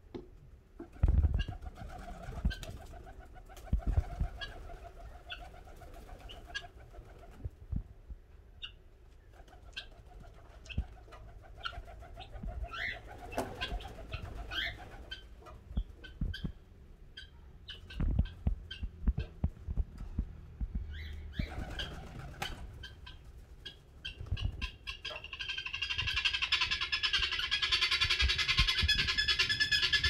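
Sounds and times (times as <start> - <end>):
pigeons cooing: 10.6 - 15.3
small birds chirping: 11.6 - 19.5, 20.7 - 30.0.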